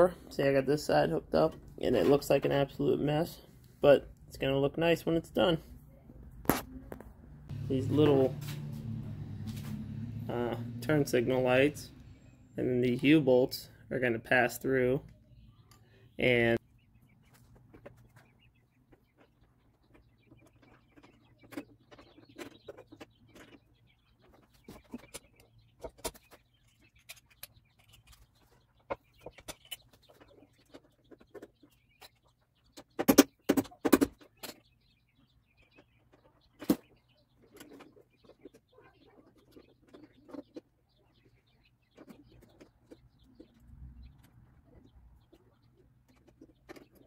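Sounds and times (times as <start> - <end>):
hands fitting lights and wiring: 6.3 - 16.6.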